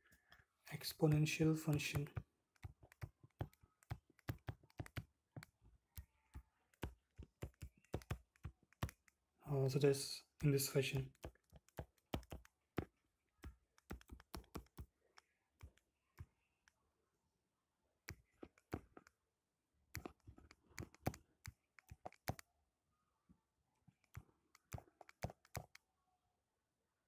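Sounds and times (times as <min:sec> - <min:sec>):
stylus tapping on glass screen: 0:01.1 - 0:09.2, 0:10.4 - 0:15.8.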